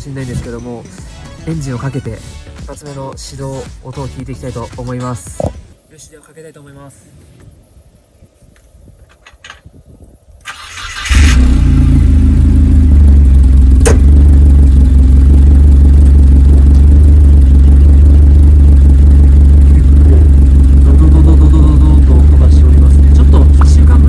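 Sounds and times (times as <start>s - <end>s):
car engine starting and idling: 10.4s - 24.0s
sharp click: 13.8s - 14.1s.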